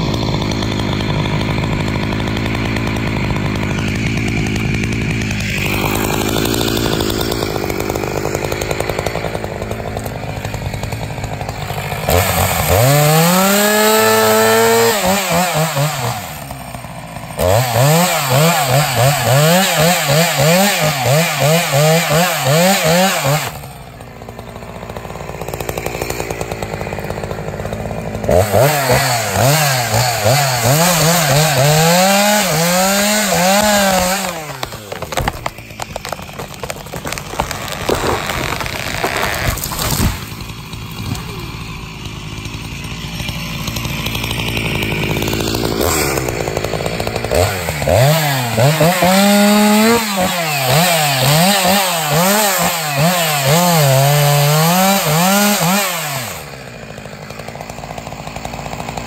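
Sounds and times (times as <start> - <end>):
chainsaw cutting wood: 0.0 - 59.0.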